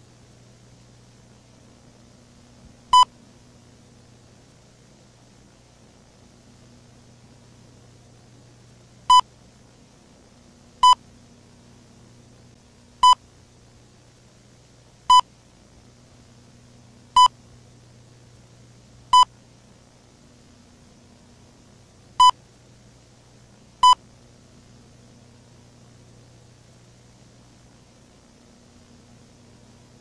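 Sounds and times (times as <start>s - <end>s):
tape hum and hiss: 0.0s - 30.0s.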